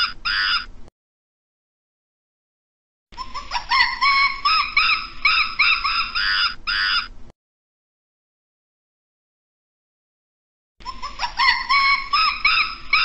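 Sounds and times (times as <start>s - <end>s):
monkey crying: 0.0s - 0.7s, 3.2s - 7.2s, 10.8s - 13.0s.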